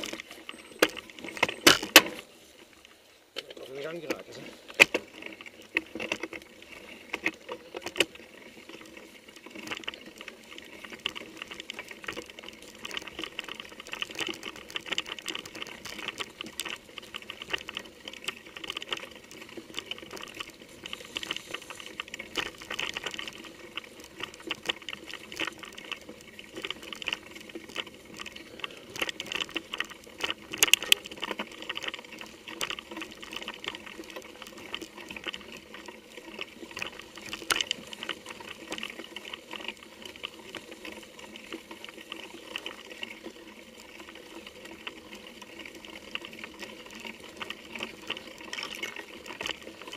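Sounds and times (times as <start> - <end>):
mountain bike rattling on trail: 0.0 - 49.9.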